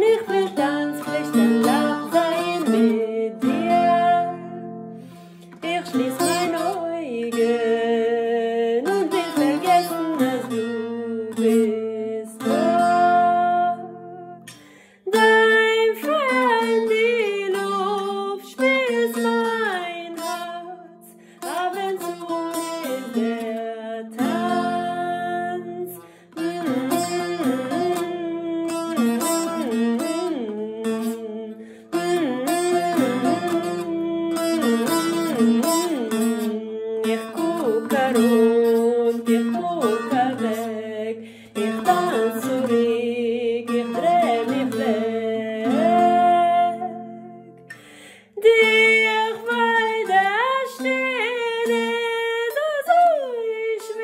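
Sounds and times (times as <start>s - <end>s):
long-necked lute plucked: 0.0s - 54.0s.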